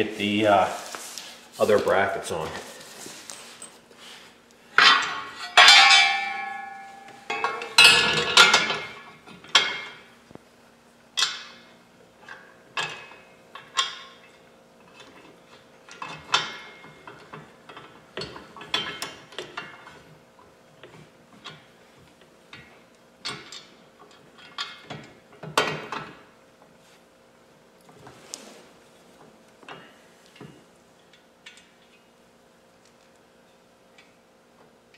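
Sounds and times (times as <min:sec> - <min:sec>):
metal bolts clinking: 0:04.8 - 0:08.9.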